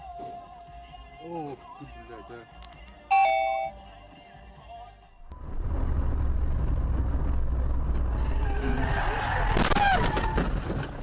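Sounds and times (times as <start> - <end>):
loud two-pitch tone: 3.1 - 3.8
car engine rumble: 5.2 - 8.8
road noise: 5.3 - 9.8.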